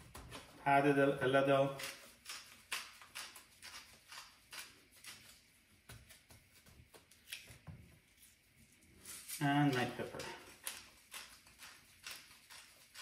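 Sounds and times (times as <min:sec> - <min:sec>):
salt grains clicking on meat: 0:01.8 - 0:06.3, 0:09.6 - 0:13.0.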